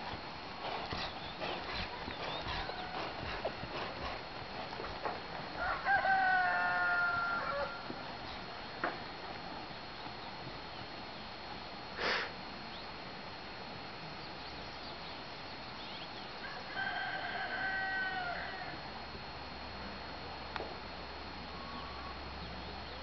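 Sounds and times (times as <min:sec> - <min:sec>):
outdoor background hiss: 0:00.0 - 0:23.0
rooster crowing: 0:02.4 - 0:03.5, 0:05.5 - 0:07.9, 0:16.4 - 0:18.9.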